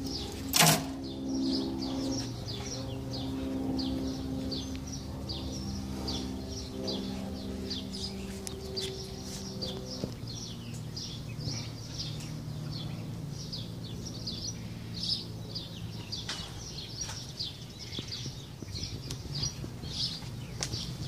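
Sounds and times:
small birds chirping: 0.0 - 21.0
steady low hum: 0.0 - 21.0.

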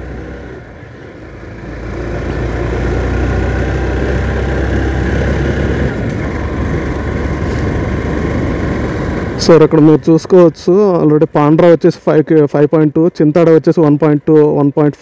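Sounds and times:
motorcycle engine climbing: 0.0 - 13.2.

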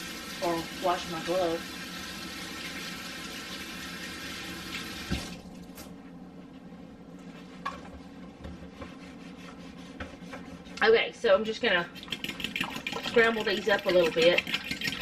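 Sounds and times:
faucet running: 0.0 - 5.5, 12.0 - 15.0
faucet turned off with knock: 5.0 - 5.4.

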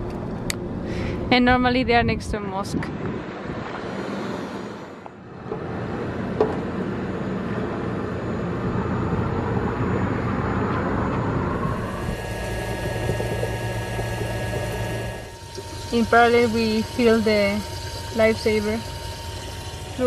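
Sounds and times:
steady hum: 0.0 - 20.0
water running through hose: 11.8 - 20.0.

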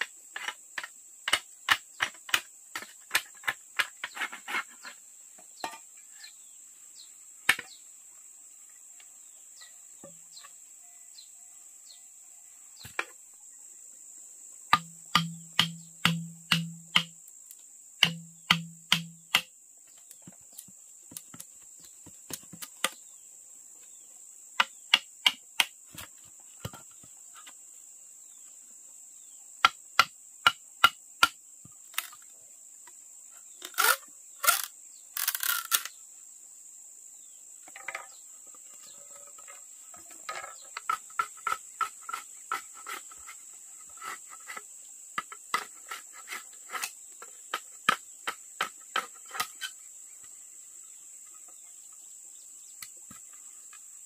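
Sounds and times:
insects droning: 0.0 - 54.0
hand tool striking hard surface: 14.7 - 17.2, 18.0 - 19.5.

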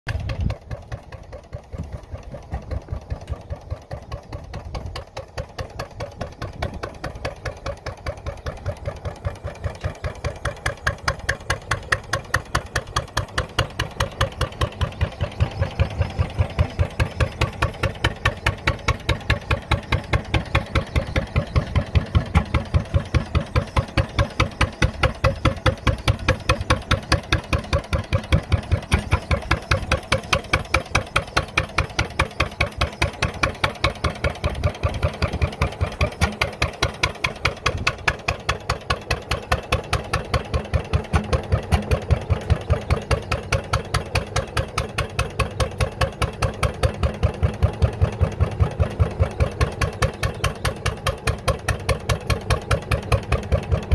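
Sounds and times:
single-cylinder gas engine running: 0.1 - 53.9.

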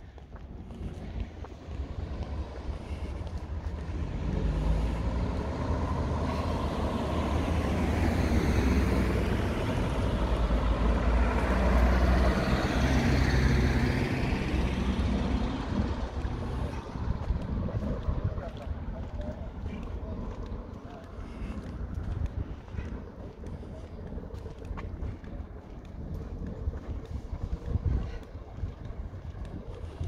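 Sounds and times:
road traffic passing: 0.0 - 30.0
wind rumble on microphone: 0.0 - 30.0.

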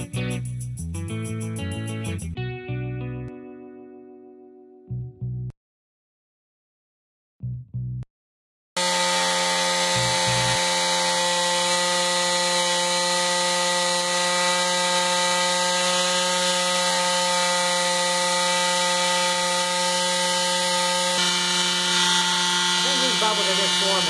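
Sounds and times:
jigsaw motor whine: 8.8 - 24.0.

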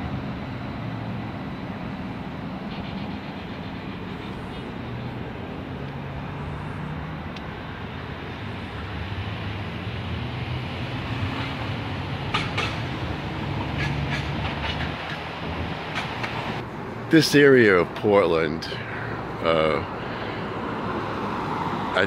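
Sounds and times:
streetcar rumbling on rails: 0.0 - 22.0
wheels clacking over rail joints: 1.8 - 6.0, 11.2 - 16.6.

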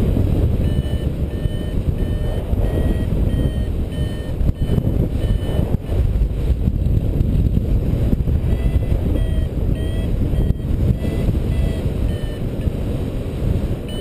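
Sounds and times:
wind buffeting microphone: 0.0 - 14.0
variometer beeping high tones: 0.5 - 5.8, 8.4 - 12.8.

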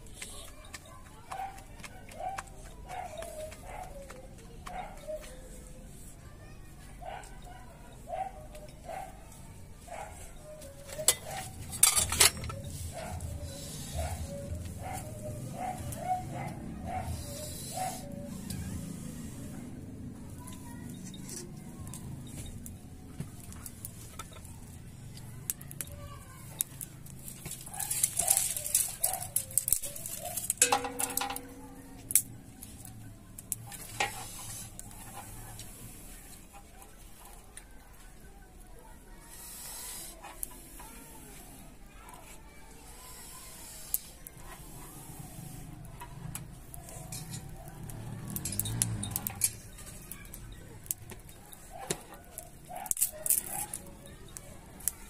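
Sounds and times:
twigs crackling in a fire: 0.0 - 55.0
metal utensil clinking on pan: 11.1 - 12.5, 30.4 - 32.2.

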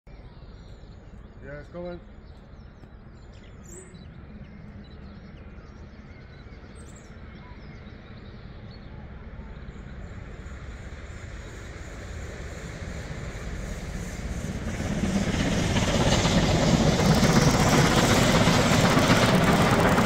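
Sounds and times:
distant steam train rumble: 0.2 - 20.0.

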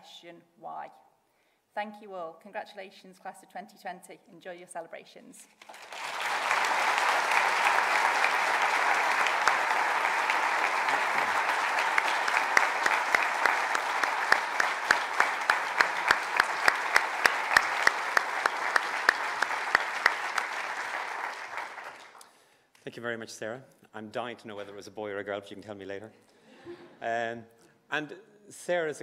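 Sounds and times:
audience applauding: 5.6 - 22.3
close person clapping: 5.6 - 22.4.

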